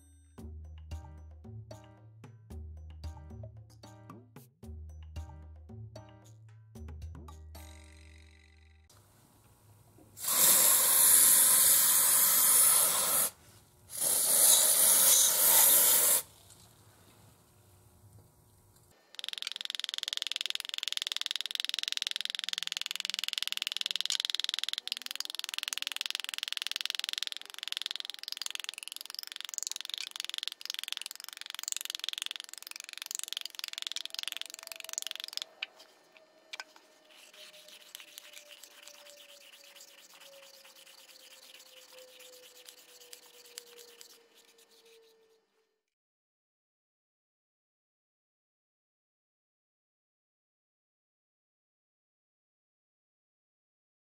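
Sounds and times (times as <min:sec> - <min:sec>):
aerosol can spraying: 0:10.2 - 0:16.3, 0:36.6 - 0:44.9.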